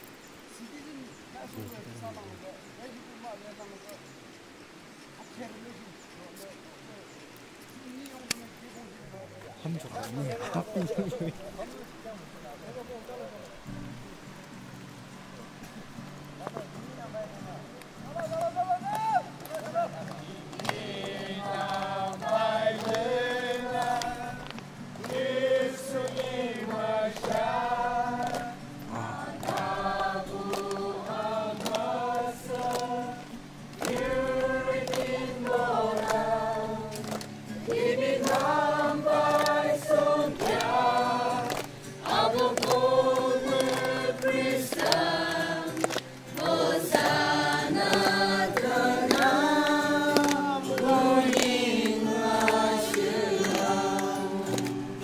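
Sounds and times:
group of voices singing: 20.3s - 55.0s.

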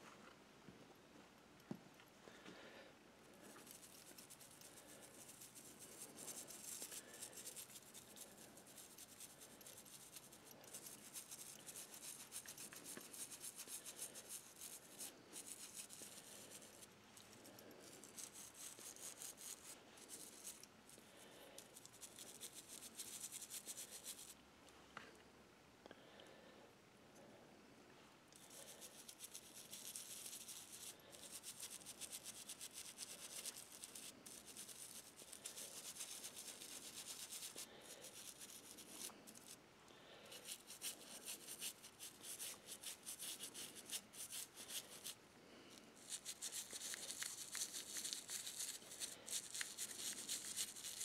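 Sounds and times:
toothbrush scrubbing metal: 3.6s - 20.7s, 28.4s - 39.6s, 40.4s - 45.2s, 46.0s - 51.0s.

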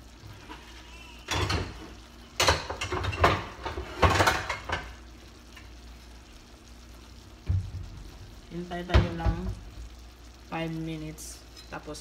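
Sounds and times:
pots and pans clattering: 0.3s - 5.0s.

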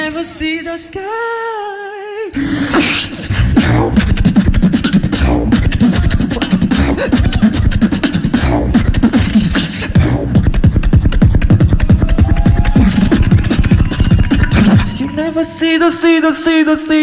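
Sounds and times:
amplified beatboxing: 2.3s - 15.3s.

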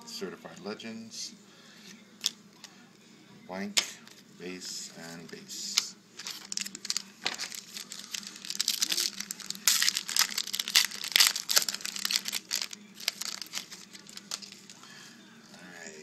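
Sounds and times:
foil wrapper crinkling and tearing: 6.2s - 14.8s.

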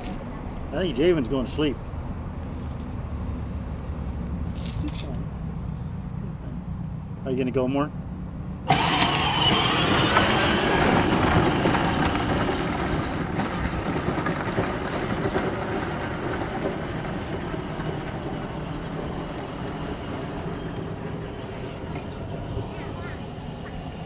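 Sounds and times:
toy car electric motor whirring: 8.7s - 13.5s
plastic wheels rattling on gravel: 8.7s - 23.8s.

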